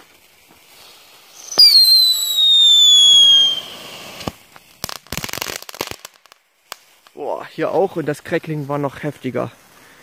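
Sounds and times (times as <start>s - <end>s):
firework whistling: 0.0s - 7.2s
firework crackling: 0.0s - 10.0s.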